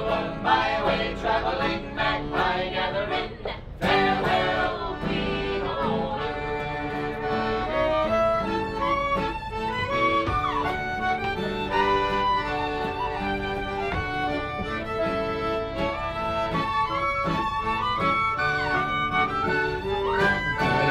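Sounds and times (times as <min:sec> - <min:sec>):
acoustic guitar: 0:00.0 - 0:20.9
fiddle melody: 0:03.8 - 0:20.9
pipe whistle: 0:07.2 - 0:20.9.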